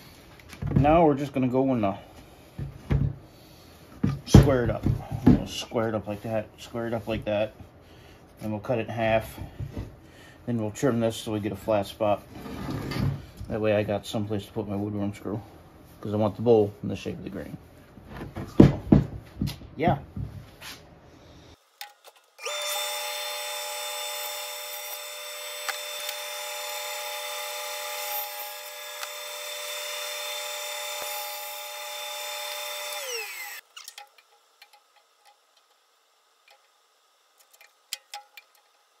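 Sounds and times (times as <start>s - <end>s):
bandsaw cutting log: 21.6s - 36.8s.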